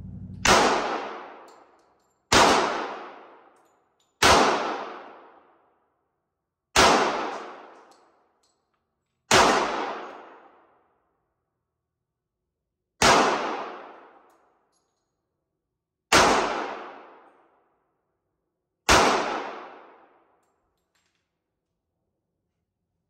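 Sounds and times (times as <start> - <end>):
gunshots echoing: 0.0 - 1.4.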